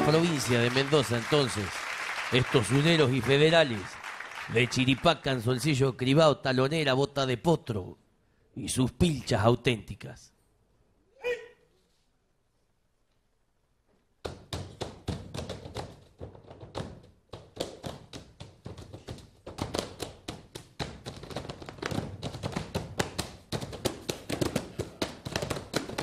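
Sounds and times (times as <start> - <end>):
feet stamping on stage floor: 14.2 - 26.0.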